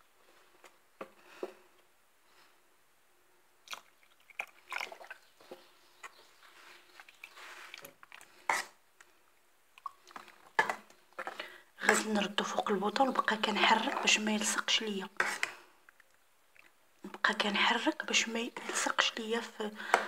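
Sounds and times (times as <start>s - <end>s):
spoon stirring porridge: 4.4s - 9.2s, 9.8s - 20.0s.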